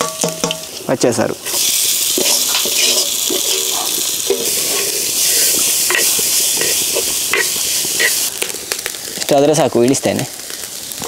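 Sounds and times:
steady sizzle: 0.0s - 11.0s
wooden spatula scraping clay pot: 1.4s - 8.3s.

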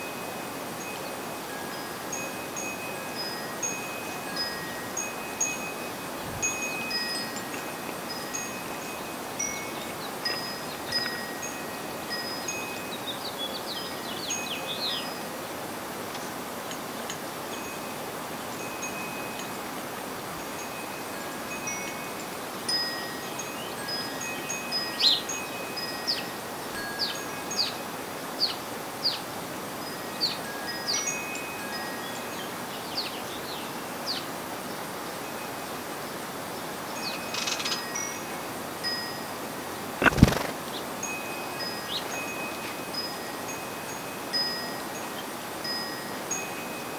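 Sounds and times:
wind chime ringing: 0.0s - 13.0s, 20.6s - 27.7s, 41.0s - 46.9s
steady background hiss: 0.0s - 46.9s.

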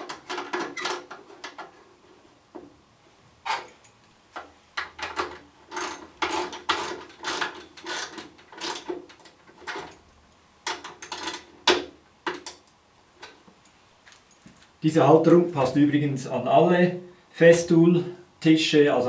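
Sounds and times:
ratchet wrench clicking: 5.7s - 8.9s.

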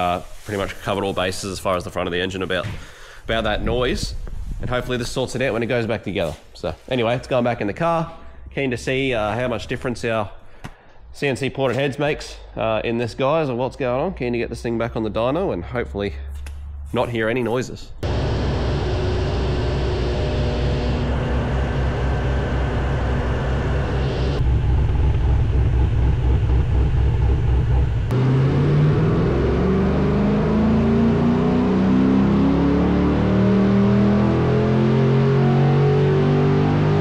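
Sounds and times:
car engine on dyno: 18.0s - 37.0s.

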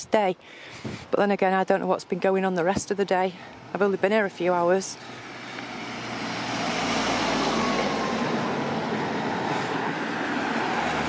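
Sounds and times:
car driving past: 5.2s - 11.0s.

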